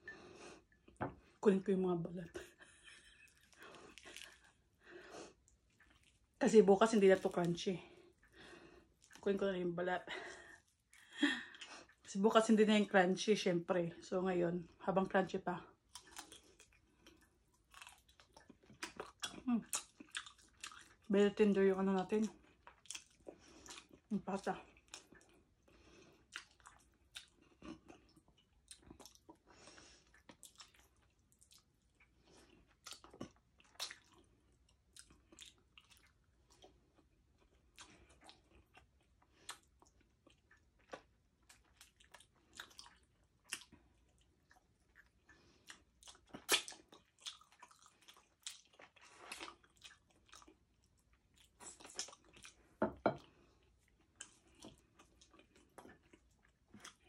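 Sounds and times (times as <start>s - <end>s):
wet mouth sounds: 44.5s - 50.0s.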